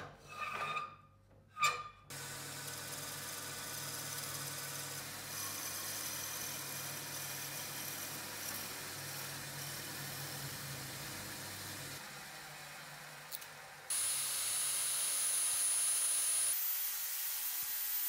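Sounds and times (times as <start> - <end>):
power tool motor humming: 13.3 - 18.0.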